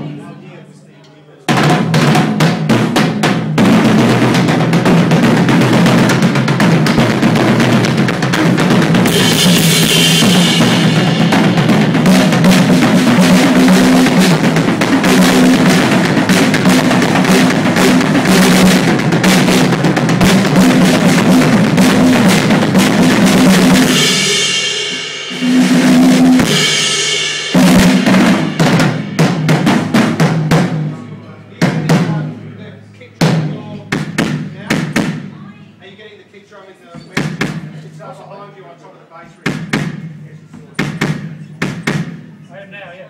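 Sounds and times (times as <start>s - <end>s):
drum kit playing: 1.4s - 36.2s, 37.0s - 43.0s
cymbal crashes: 3.6s - 31.0s.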